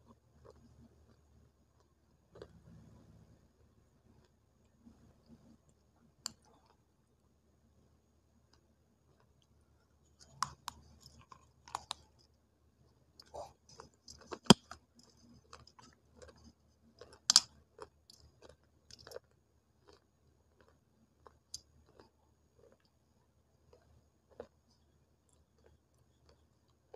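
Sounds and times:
chewing crunchy clay: 1.8s - 2.8s, 10.2s - 12.2s, 13.2s - 22.9s.

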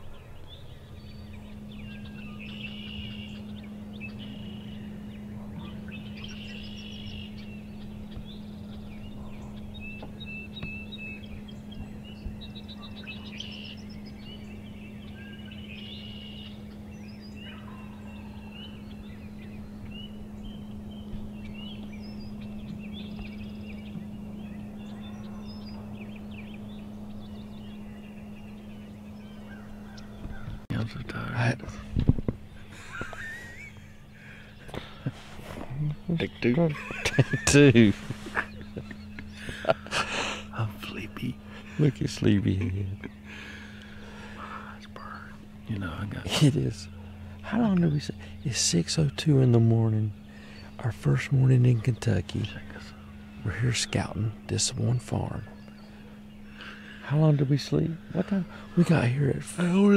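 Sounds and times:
songbird chirps: 0.0s - 59.9s
steady low hum: 0.0s - 59.9s
turkey gobbling: 17.4s - 18.8s.

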